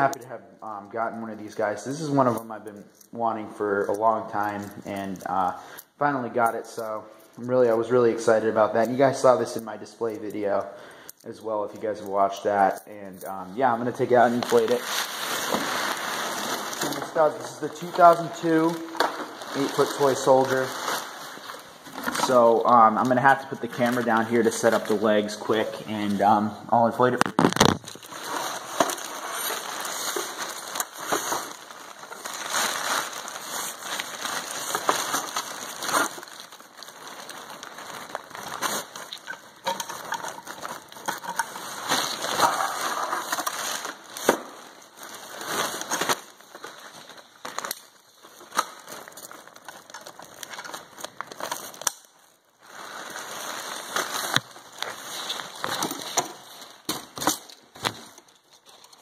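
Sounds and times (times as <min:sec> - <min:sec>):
nylon fabric rustling: 0:13.7 - 0:22.6.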